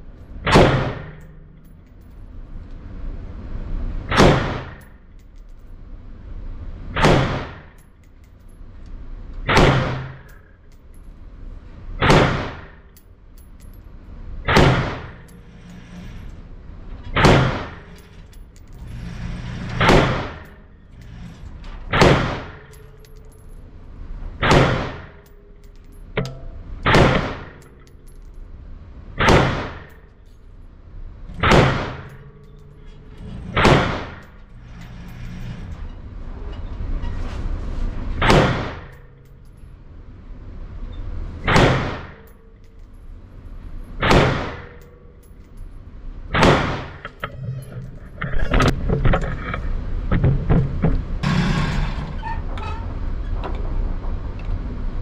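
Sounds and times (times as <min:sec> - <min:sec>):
rifle shots in indoor range: 0:00.4 - 0:01.9, 0:04.1 - 0:05.5, 0:06.9 - 0:07.9, 0:09.4 - 0:10.8, 0:12.0 - 0:13.1, 0:14.4 - 0:16.2, 0:17.0 - 0:18.4, 0:19.2 - 0:23.4, 0:24.4 - 0:28.4, 0:29.2 - 0:30.3, 0:31.3 - 0:32.6, 0:33.2 - 0:35.6, 0:38.2 - 0:39.6, 0:41.4 - 0:43.2, 0:43.9 - 0:45.3, 0:46.3 - 0:47.2.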